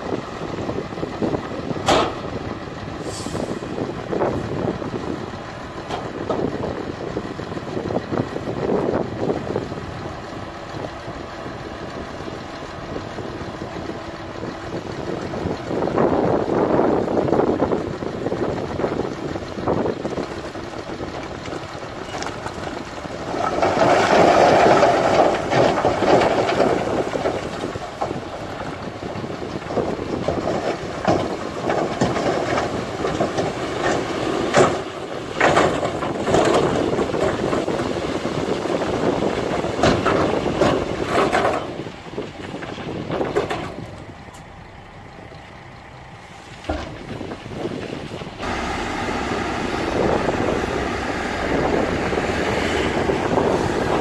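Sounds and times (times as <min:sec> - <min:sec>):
diesel truck engine running: 0:00.0 - 0:54.0
load of soil sliding: 0:03.0 - 0:04.5, 0:22.1 - 0:28.5, 0:46.2 - 0:54.0
steady machine noise: 0:48.4 - 0:54.0.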